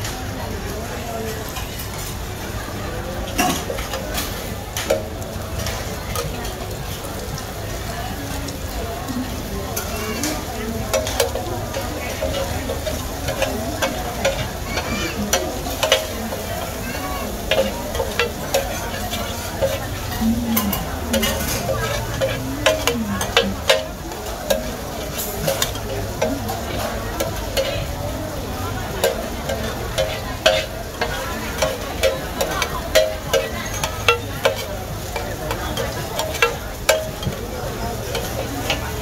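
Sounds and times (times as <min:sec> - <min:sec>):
noodles sizzling in oil: 0:00.0 - 0:39.0
metal spatulas scraping griddle: 0:12.3 - 0:23.9.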